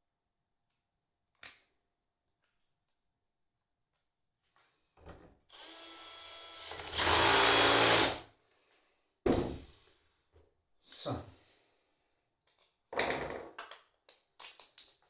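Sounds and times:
cordless drill running: 0:05.5 - 0:08.3.

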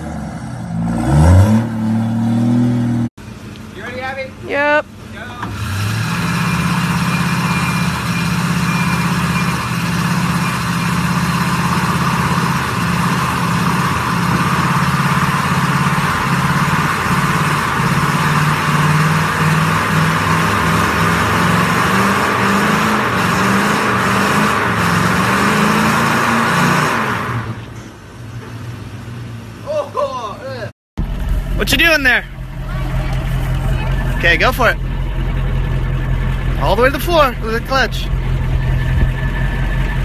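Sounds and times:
truck engine revving high: 0:00.0 - 0:03.1, 0:05.4 - 0:27.6, 0:31.0 - 0:40.0
tire spinning and squealing: 0:05.5 - 0:27.6, 0:31.0 - 0:40.0.

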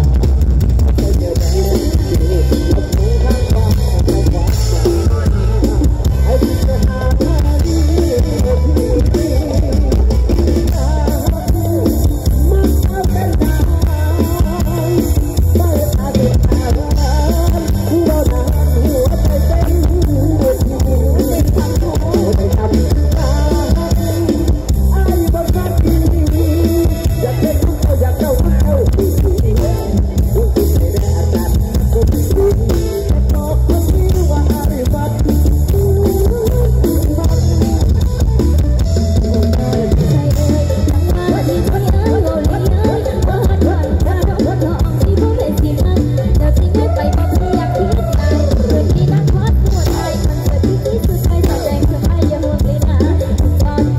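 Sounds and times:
live band music: 0:00.0 - 0:53.9
person singing: 0:00.0 - 0:53.9.

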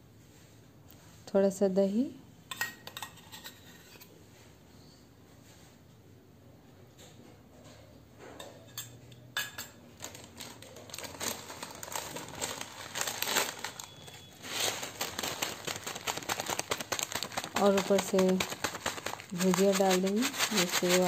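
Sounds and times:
plastic packet crinkling: 0:10.0 - 0:21.0.

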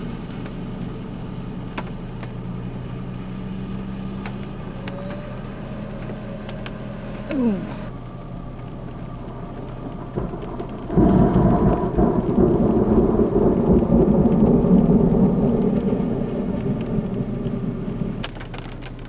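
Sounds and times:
thunder rumbling: 0:04.4 - 0:19.0.

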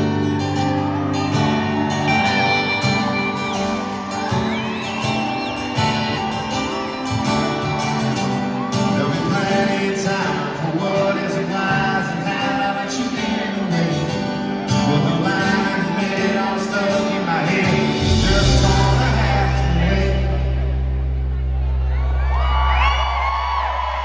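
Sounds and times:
acoustic guitars strumming: 0:00.0 - 0:21.8
man singing through pa: 0:08.8 - 0:20.8.

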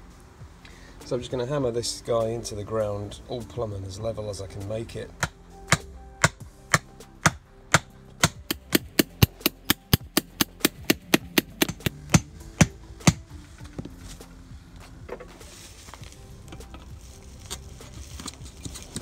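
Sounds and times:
hammer striking ground stake: 0:05.2 - 0:13.3.

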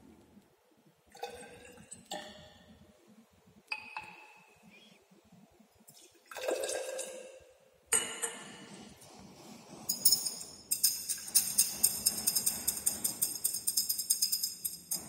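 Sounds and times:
water pouring into glass cylinder: 0:01.1 - 0:02.2
glass rod clinking against glass: 0:09.9 - 0:15.0.

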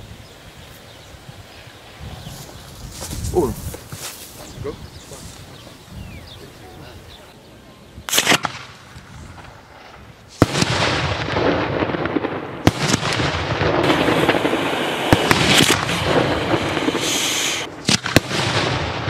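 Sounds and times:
fireworks crackling: 0:00.0 - 0:07.4, 0:08.0 - 0:19.0
fireworks bangs: 0:08.1 - 0:19.0.

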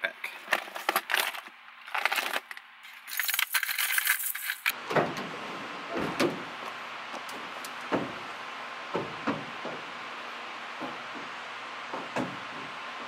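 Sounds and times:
lures rattling in plastic box: 0:00.4 - 0:04.8.

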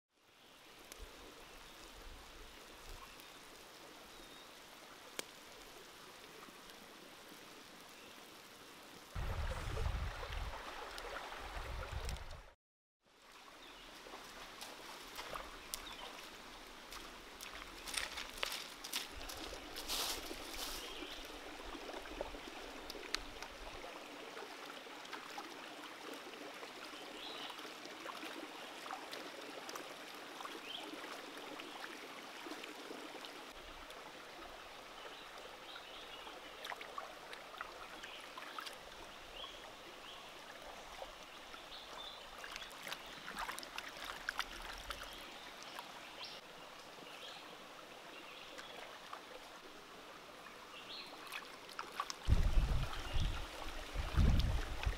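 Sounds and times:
stream babbling: 0:00.5 - 0:12.6, 0:13.2 - 0:54.9
small clicks and splashes: 0:05.0 - 0:06.8, 0:14.0 - 0:31.1, 0:36.6 - 0:39.0, 0:40.9 - 0:45.9, 0:51.2 - 0:54.9.

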